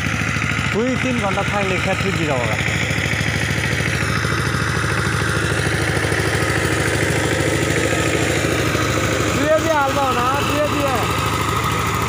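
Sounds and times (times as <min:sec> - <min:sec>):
diesel power tiller engine chugging: 0:00.0 - 0:12.0.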